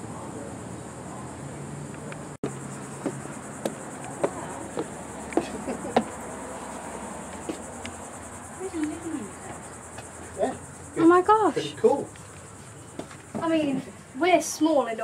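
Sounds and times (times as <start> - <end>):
high insect trill: 0.0 - 15.0
footsteps on wooden boards: 2.4 - 6.2, 7.3 - 7.6.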